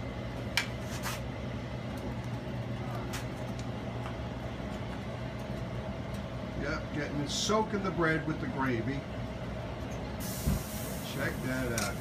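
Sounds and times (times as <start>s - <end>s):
kitchen equipment humming: 0.0s - 12.0s.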